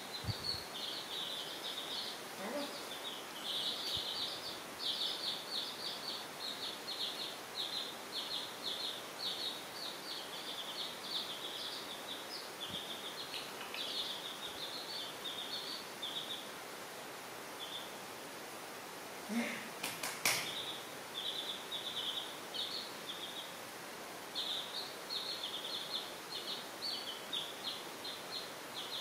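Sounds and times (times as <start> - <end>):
chicks peeping: 0.0 - 16.8, 17.5 - 18.0, 19.3 - 29.0.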